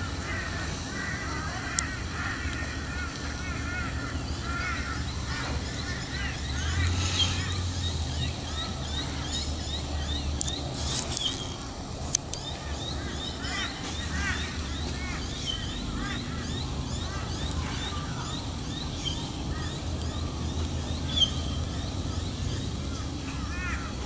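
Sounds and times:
birds chirping and calling: 0.0s - 24.0s
steady low rumble: 0.0s - 24.0s.

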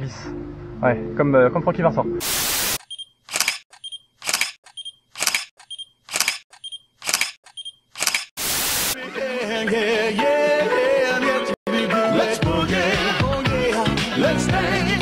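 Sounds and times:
music: 0.0s - 2.2s, 9.0s - 15.0s
burst of hiss-like noise: 2.2s - 2.8s, 8.4s - 9.0s
camera shutter clicking: 3.3s - 8.3s.

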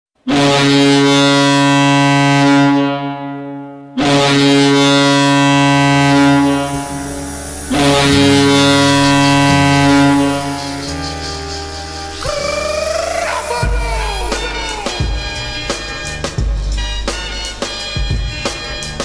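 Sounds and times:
deep goal horn blasts: 0.3s - 12.3s
goal song music: 4.0s - 19.0s.

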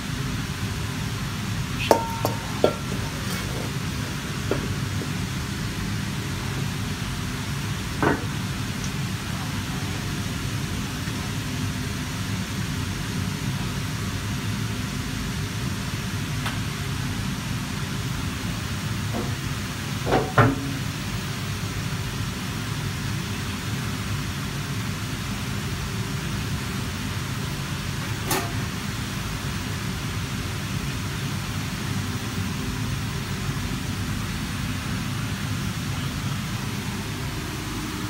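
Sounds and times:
gas range roaring: 0.0s - 11.6s, 31.0s - 38.0s
metal pans knocking: 1.9s - 5.1s.

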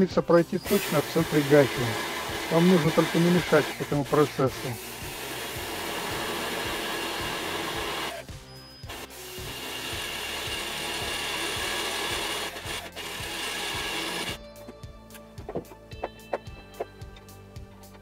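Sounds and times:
electric drill boring metal: 0.3s - 14.4s.

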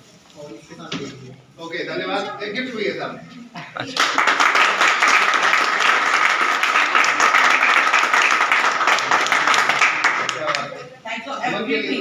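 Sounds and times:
people clapping: 3.8s - 10.8s.

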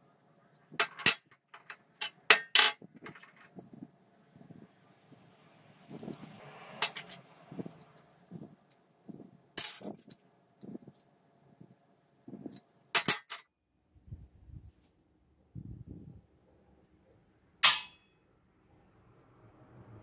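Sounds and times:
metal parts clinking on steel table: 0.8s - 3.6s, 6.8s - 7.2s, 9.6s - 10.2s, 12.5s - 13.4s, 17.6s - 18.0s.

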